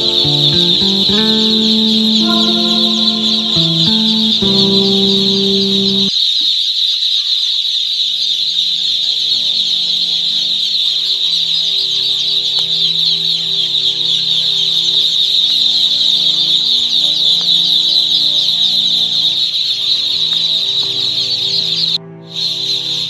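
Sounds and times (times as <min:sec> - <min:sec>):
ducklings peeping: 0:00.0 - 0:06.1
soft instrumental music: 0:00.0 - 0:06.1, 0:21.0 - 0:23.0.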